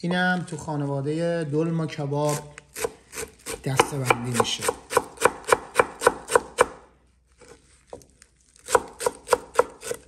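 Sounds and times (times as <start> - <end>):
knife chopping on wooden board: 2.7 - 6.8, 8.6 - 10.0.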